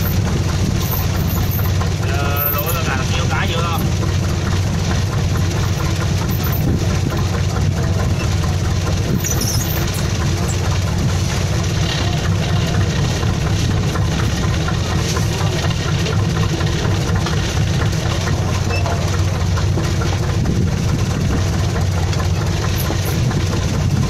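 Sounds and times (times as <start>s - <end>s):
boat engine humming: 0.0s - 24.0s.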